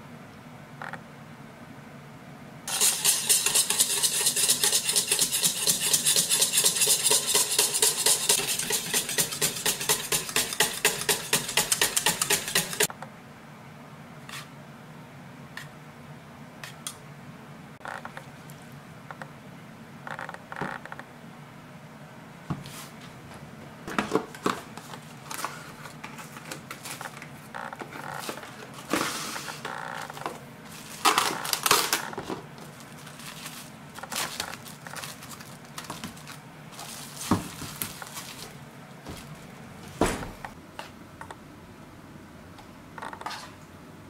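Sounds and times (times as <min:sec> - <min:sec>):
cling wrap crinkling: 0:30.6 - 0:38.6.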